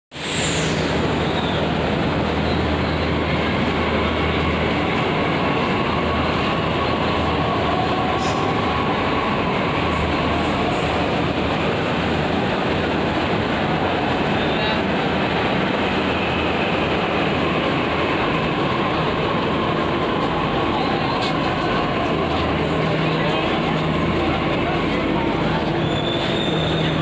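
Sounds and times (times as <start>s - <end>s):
train rumbling: 0.1s - 27.0s.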